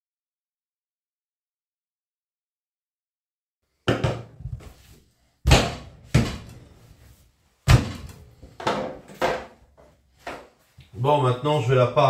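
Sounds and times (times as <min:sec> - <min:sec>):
knocks on wooden cutting board: 0:03.9 - 0:04.3.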